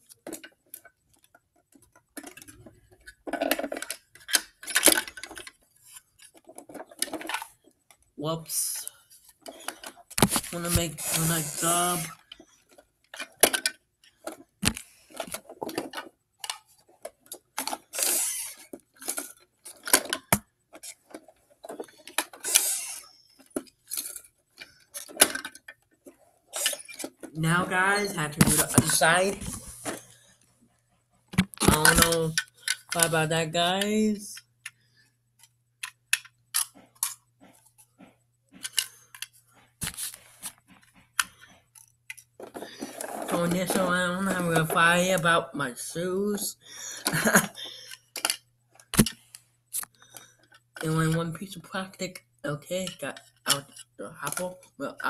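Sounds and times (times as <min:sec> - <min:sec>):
plastic toys clacking: 0:00.0 - 0:30.2, 0:31.4 - 0:37.8, 0:38.6 - 0:39.4, 0:40.7 - 0:46.1, 0:46.9 - 0:55.0
plastic scraping: 0:08.8 - 0:30.3, 0:38.6 - 0:45.4.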